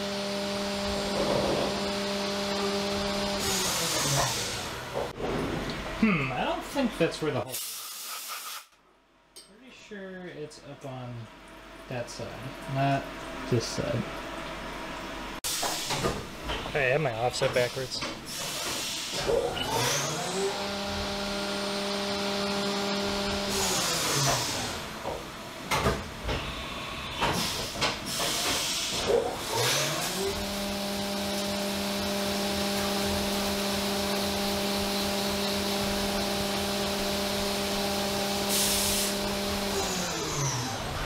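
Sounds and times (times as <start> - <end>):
milling machine spindle whining: 0.0 - 5.0, 29.4 - 41.0
hiss of coolant spray: 7.5 - 8.7, 27.3 - 29.1, 38.4 - 39.2.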